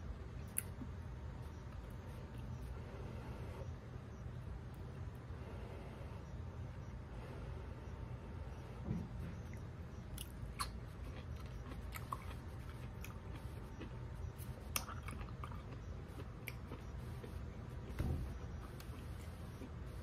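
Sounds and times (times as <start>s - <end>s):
steady low hum: 0.0s - 20.0s
person chewing crunchy food: 9.3s - 20.0s.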